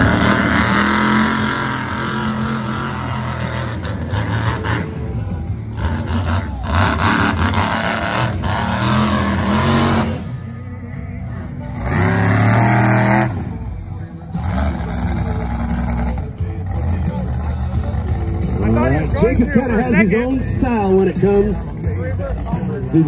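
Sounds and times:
monster truck engine revving: 0.0s - 23.0s.

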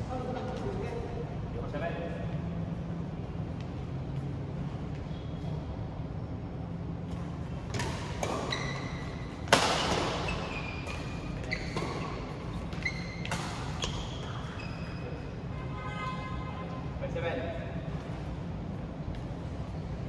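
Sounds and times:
racket hitting shuttlecock: 7.7s - 14.1s
shoe squeaks: 8.3s - 16.1s.

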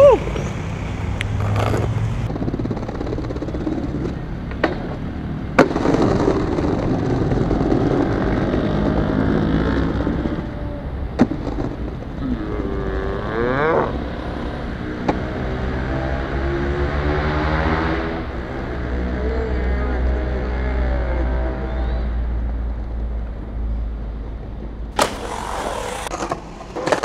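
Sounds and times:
skateboard wheels rolling on tiles: 0.3s - 8.9s, 25.0s - 27.0s
skateboard clacks: 1.2s - 6.8s.

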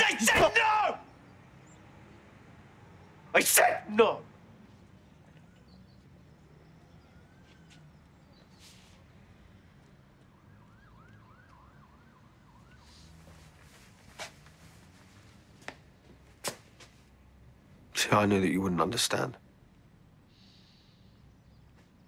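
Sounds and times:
distant siren-like warble: 5.2s - 8.4s, 9.5s - 13.9s.

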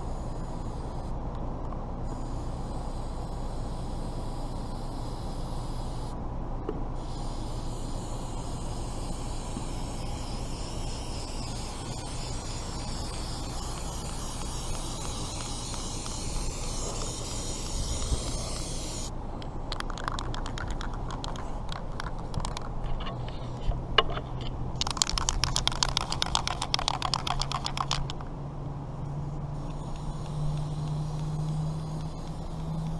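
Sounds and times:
aerosol can spraying: 2.0s - 6.2s, 7.0s - 19.1s, 24.8s - 28.2s, 29.6s - 32.9s.

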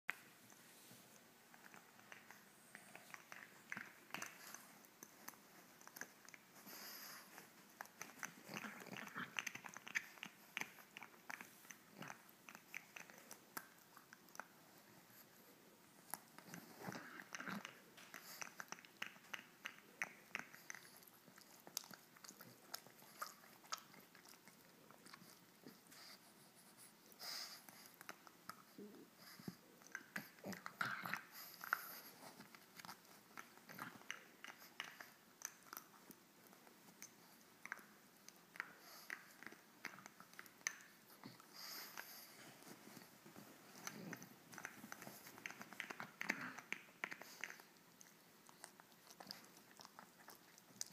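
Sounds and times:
dog chewing plush toy: 27.7s - 50.9s.

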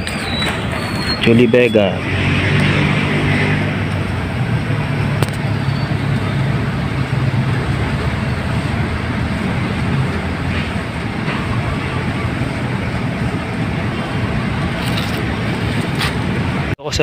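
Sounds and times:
vehicle engine humming: 0.0s - 16.8s
traffic noise: 0.0s - 17.0s.

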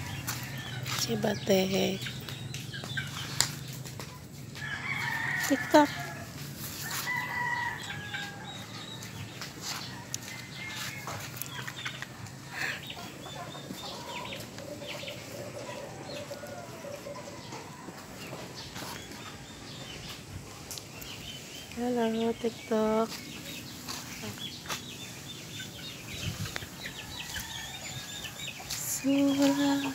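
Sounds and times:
chickens clucking: 0.0s - 29.9s
rooster crowing: 4.6s - 8.7s.

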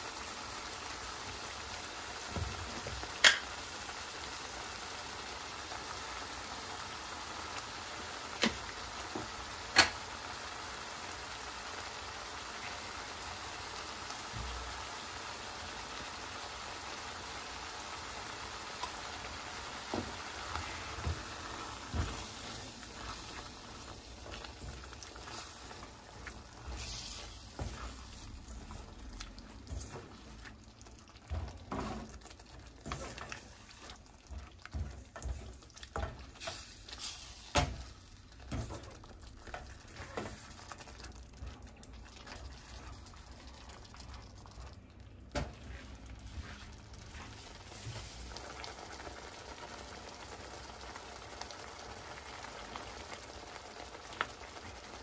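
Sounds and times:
sauce sizzling and bubbling in pan: 0.0s - 55.0s.

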